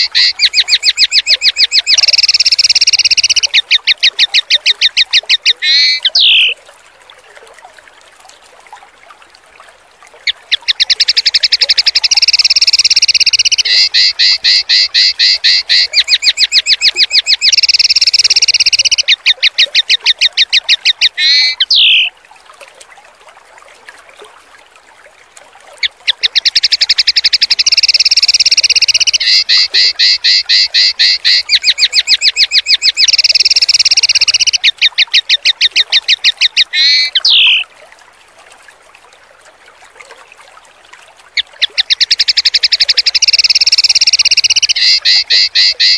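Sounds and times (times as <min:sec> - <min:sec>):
songbird harsh rapid trill: 0:00.0 - 0:06.6, 0:10.7 - 0:19.2, 0:20.8 - 0:22.1, 0:26.4 - 0:35.6, 0:36.2 - 0:37.6, 0:41.8 - 0:45.9
faint flowing water: 0:00.0 - 0:45.9.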